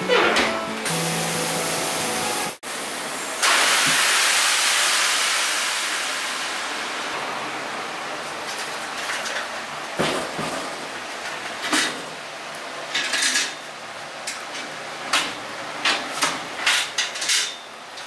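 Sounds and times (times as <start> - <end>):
steam hissing: 0.9 - 7.7.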